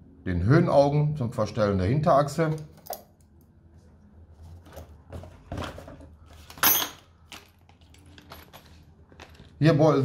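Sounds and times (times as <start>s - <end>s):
plastic bags rustling: 4.3s - 9.7s
plastic parts clattering: 4.6s - 9.7s.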